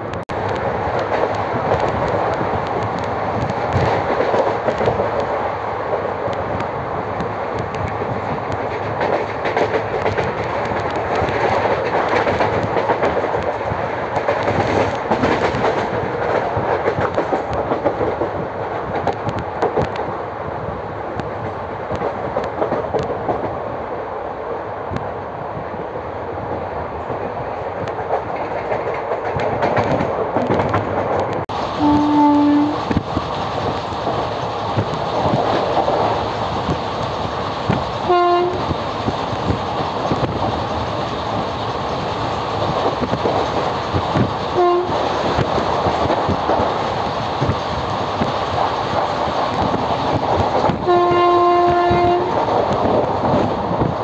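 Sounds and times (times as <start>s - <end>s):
wheels clattering on rails: 0.0s - 20.2s, 21.1s - 23.7s, 26.4s - 54.0s
train rumbling at speed: 0.0s - 54.0s
train horn blast: 31.8s - 32.8s, 38.0s - 38.6s, 44.6s - 45.0s, 50.8s - 52.4s.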